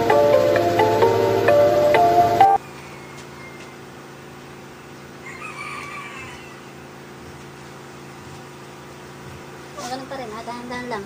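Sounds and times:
background music: 0.0s - 2.6s
low steady hum: 0.0s - 2.8s
rooster crowing: 2.6s - 4.0s, 5.2s - 6.9s.

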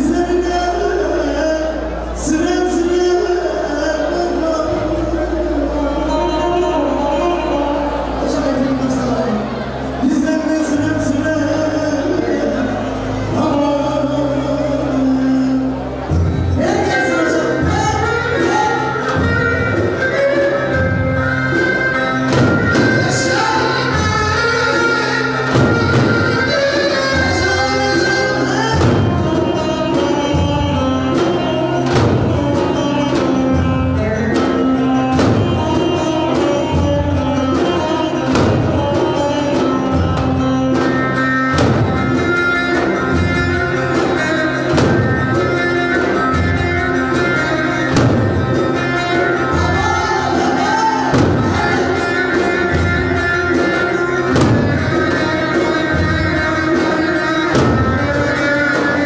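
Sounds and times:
folk dance tune: 0.0s - 59.0s
bass drum beating: 17.6s - 59.0s.

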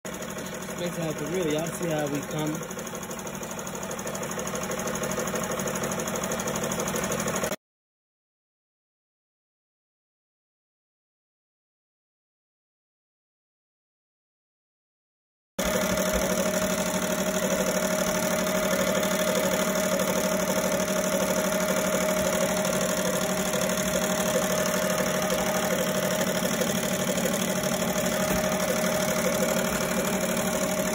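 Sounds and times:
embroidery machine stitching: 0.1s - 7.6s, 15.6s - 30.9s.

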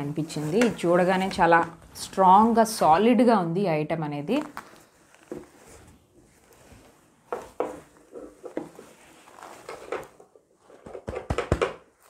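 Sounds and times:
fabric carrier rustling: 0.0s - 2.7s, 4.4s - 10.8s.

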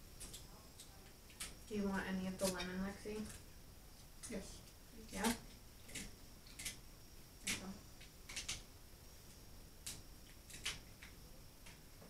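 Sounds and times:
faint clicks and smacks: 0.1s - 1.7s, 2.4s - 6.8s, 7.4s - 12.0s
shell cracking: 5.3s - 6.8s.

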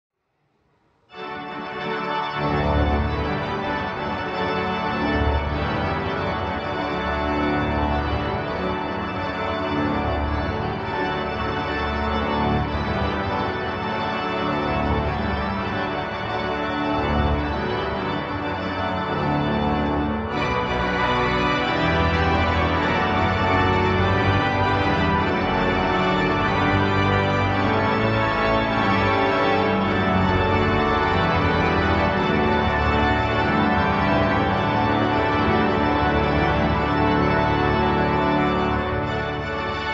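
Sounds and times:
pipe organ full chords: 1.1s - 39.9s.

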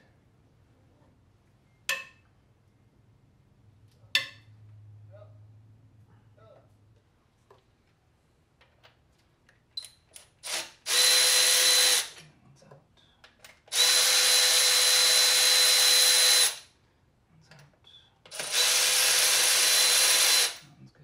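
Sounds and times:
cordless drill motor whine: 10.5s - 12.1s, 13.7s - 16.6s, 18.3s - 20.6s.

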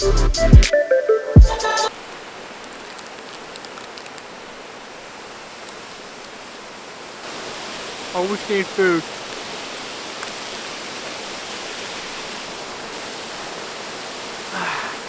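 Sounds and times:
electronic music with a beat: 0.0s - 1.9s
waterfall rushing: 1.4s - 15.0s.

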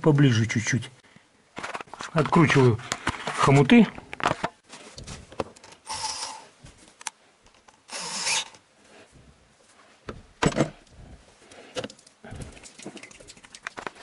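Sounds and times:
cordless drill running: 5.9s - 6.4s, 7.9s - 8.6s.

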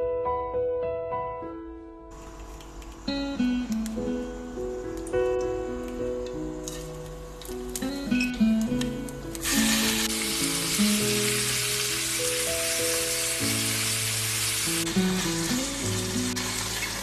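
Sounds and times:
background music: 3.0s - 17.0s
chicken sizzling in hot oil: 6.3s - 17.0s.

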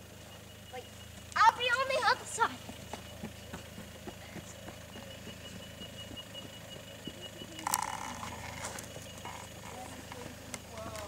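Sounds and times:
engine low hum: 0.0s - 11.0s
stones clicking under tyres: 2.6s - 11.0s.

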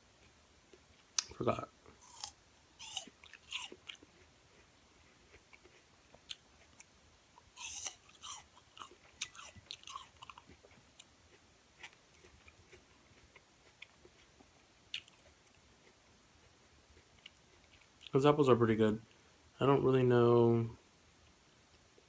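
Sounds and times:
apple crunching while chewing: 1.0s - 18.1s.

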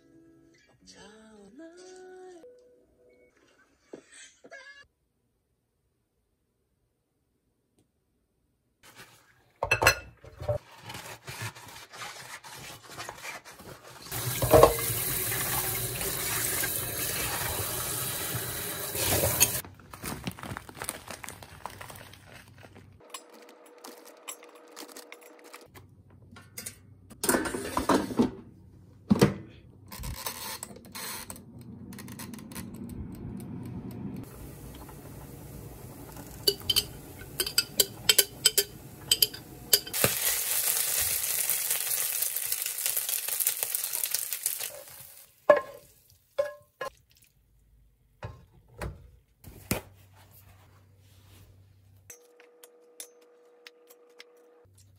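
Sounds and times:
cooking utensils clattering: 9.6s - 10.6s, 14.1s - 17.6s, 18.9s - 19.6s, 26.4s - 28.4s, 34.6s - 40.2s
bowls and glasses clinking: 36.2s - 40.0s.

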